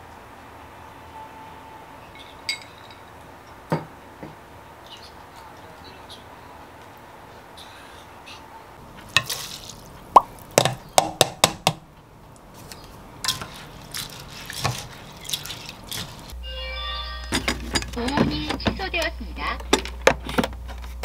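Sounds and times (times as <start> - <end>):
metal pot and lid clinking: 2.2 - 3.1.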